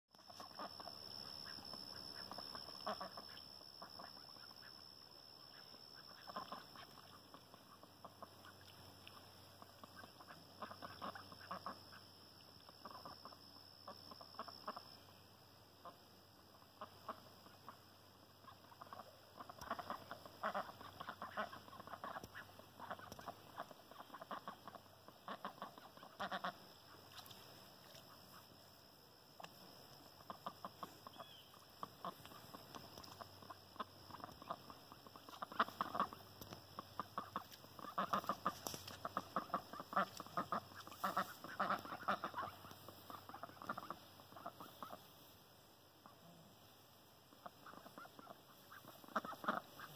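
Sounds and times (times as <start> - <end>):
ducks quacking: 0.3 - 4.8, 5.5 - 12.1, 18.4 - 28.5, 30.2 - 45.3, 47.3 - 49.9.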